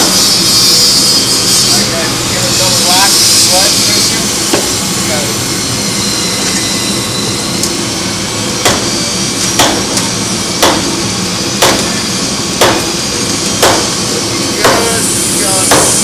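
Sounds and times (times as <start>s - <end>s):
hammer striking wooden hull: 8.6s - 8.9s, 9.6s - 9.9s, 10.6s - 10.9s, 11.6s - 11.9s, 12.6s - 12.9s, 13.6s - 14.0s, 14.6s - 14.9s, 15.7s - 16.0s.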